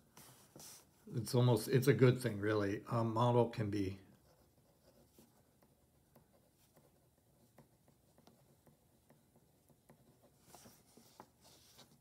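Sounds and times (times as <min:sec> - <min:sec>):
pen scratching on paper: 0:04.2 - 0:12.0.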